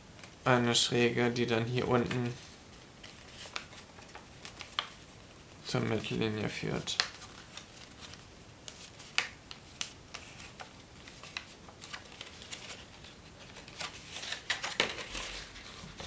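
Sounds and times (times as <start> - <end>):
paper rustling and crinkling: 1.7 - 5.1, 5.8 - 16.0.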